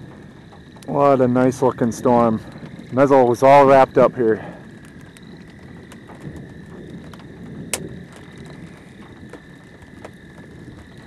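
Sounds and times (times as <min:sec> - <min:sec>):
wind noise on microphone: 0:00.0 - 0:11.0
sharp clicks: 0:04.8 - 0:08.5.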